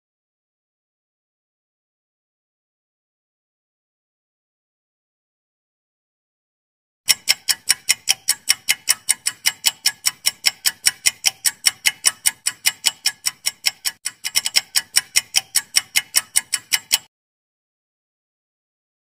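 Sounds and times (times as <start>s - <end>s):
fast clock ticking: 7.1s - 17.1s.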